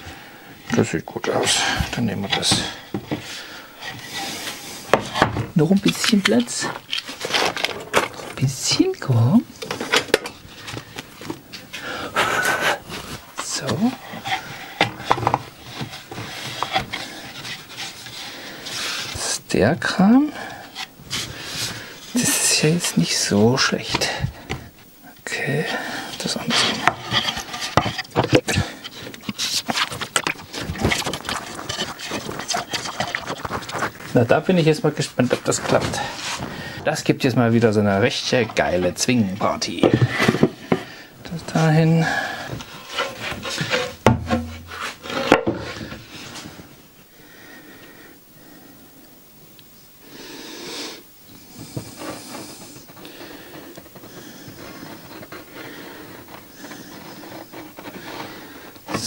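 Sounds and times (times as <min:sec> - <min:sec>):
wooden boards scraping: 0:01.3 - 0:08.7, 0:09.6 - 0:19.4, 0:25.4 - 0:46.7, 0:51.5 - 0:59.0
wooden boards knocking: 0:43.5 - 0:45.6.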